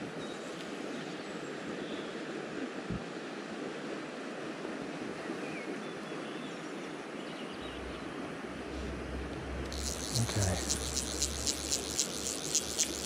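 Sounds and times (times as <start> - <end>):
low rumble: 7.6 - 10.2.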